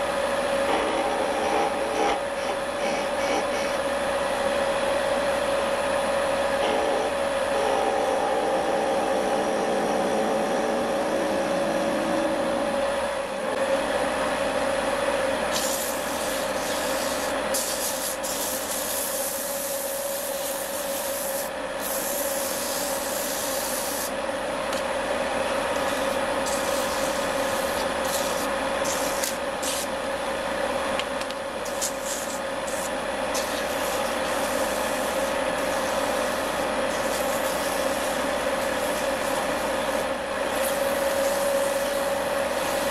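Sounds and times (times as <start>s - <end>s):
wood lathe humming: 0.0s - 13.5s, 31.6s - 42.9s
chisel cutting spinning wood: 0.6s - 3.8s
sandpaper hissing on wood: 15.5s - 24.1s, 25.9s - 29.9s, 31.7s - 42.9s.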